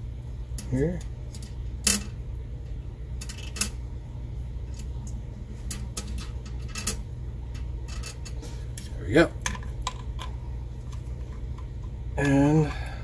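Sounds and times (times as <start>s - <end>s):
low steady hum: 0.0s - 13.0s
metal washers clinking: 5.6s - 8.4s.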